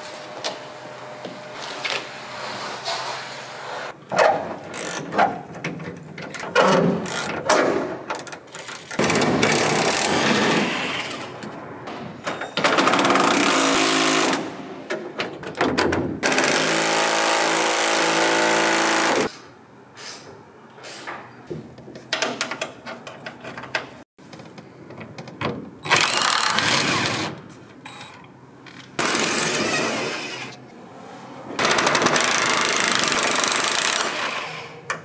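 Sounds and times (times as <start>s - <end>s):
knocks and metal clanks: 9.0s - 10.4s, 11.4s - 13.5s, 14.2s - 16.3s.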